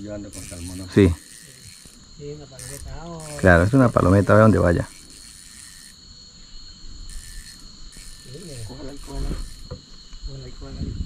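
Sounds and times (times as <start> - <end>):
quiet voices talking: 0.0 - 5.0, 8.2 - 11.0
insects chirring: 0.0 - 11.0.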